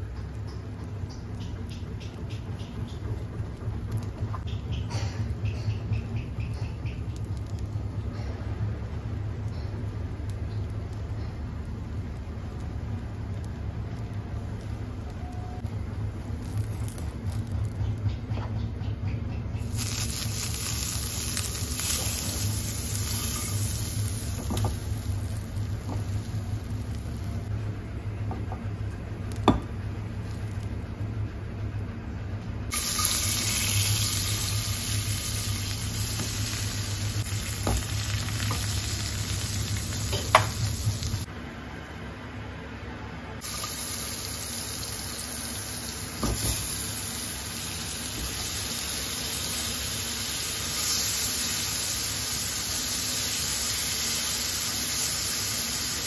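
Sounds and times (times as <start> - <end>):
butter sizzling in a pan: 16.3 - 17.6, 19.6 - 27.5, 32.7 - 41.3, 43.4 - 56.0.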